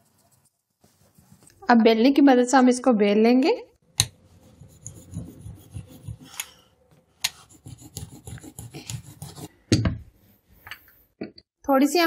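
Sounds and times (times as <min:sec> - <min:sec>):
rolling pin rubbing on dough: 0:04.3 - 0:06.4.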